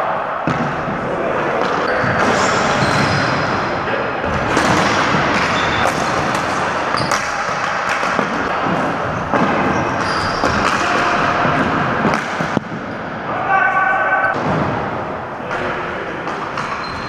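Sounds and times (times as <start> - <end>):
shoe squeaks: 1.9 - 3.5, 5.4 - 6.0, 6.9 - 7.2, 9.8 - 10.7, 16.6 - 17.0
hockey sticks clacking on ball: 4.5 - 12.8, 15.5 - 17.0.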